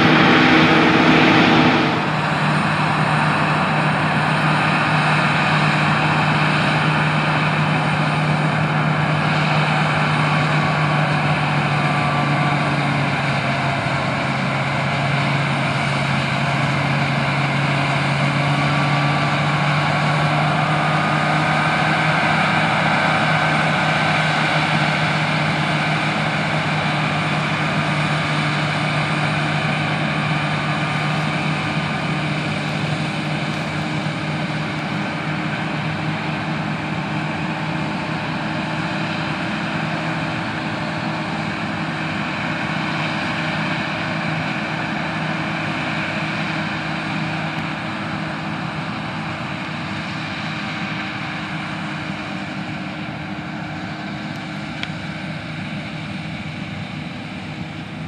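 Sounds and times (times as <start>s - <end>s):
steady low hum: 0.0s - 4.3s
engine drone: 0.0s - 58.0s.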